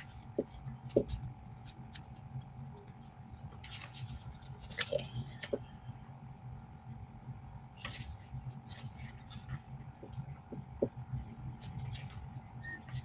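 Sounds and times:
booklet pages rustling: 0.0s - 5.6s, 7.8s - 10.6s, 11.5s - 13.0s
steady background hum: 0.0s - 13.0s.

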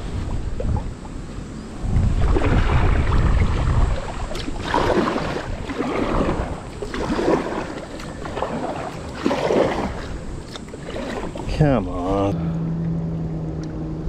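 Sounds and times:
low rumble on microphone: 0.0s - 9.1s
paddle splashing in water: 2.0s - 12.2s.

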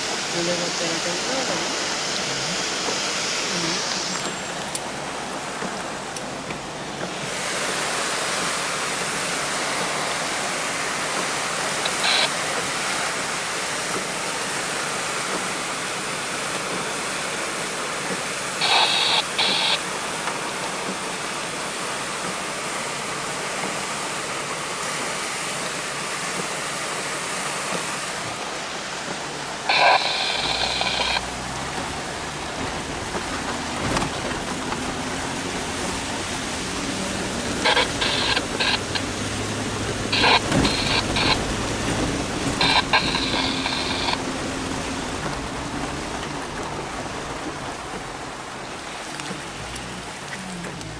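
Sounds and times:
low vehicle rumble: 0.0s - 50.9s
river rushing in flood: 0.0s - 50.9s.

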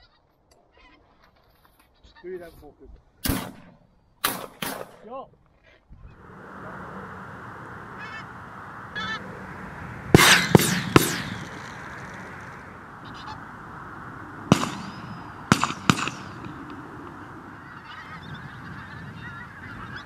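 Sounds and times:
shotgun shots: 3.2s - 5.0s, 10.2s - 12.7s, 14.4s - 17.2s
geese honking: 6.1s - 20.0s.

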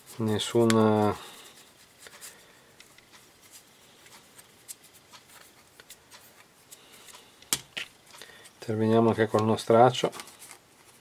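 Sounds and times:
brush scrubbing plastic: 0.0s - 7.1s.

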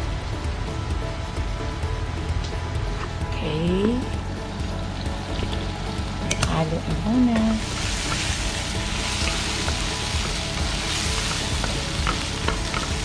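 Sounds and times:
meat sizzling in a wok: 7.0s - 13.0s.

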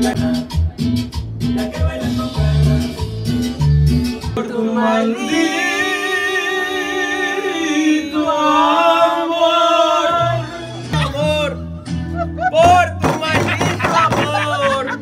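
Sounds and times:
latin backing track with beat: 0.0s - 7.2s, 9.6s - 15.0s
man singing into microphone: 1.6s - 3.0s.

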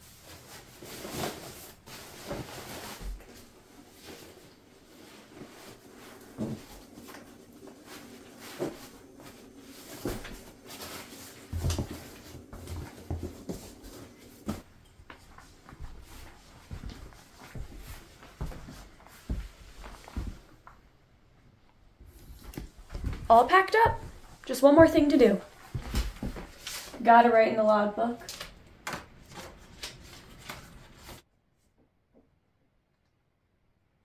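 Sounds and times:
nylon rustling: 0.0s - 20.5s.

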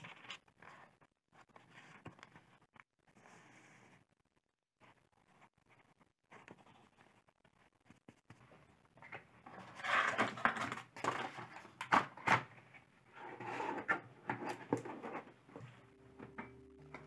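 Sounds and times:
cardboard scraping and rustling: 9.4s - 12.5s.

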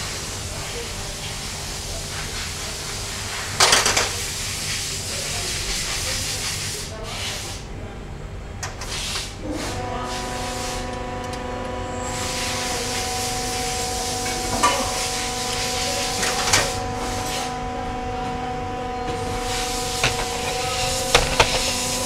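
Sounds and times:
machine hum with hiss: 8.8s - 22.0s.

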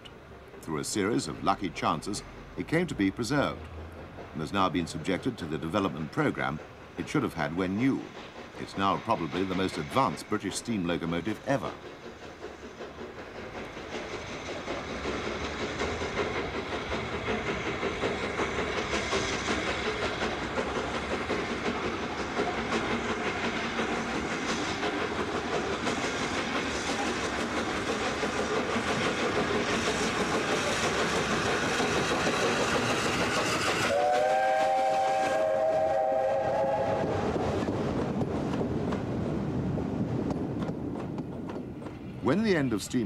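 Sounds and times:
steam locomotive exhaust beats: 0.0s - 43.0s
train rumble: 0.0s - 43.0s
multi-note steam whistle: 33.5s - 37.3s.

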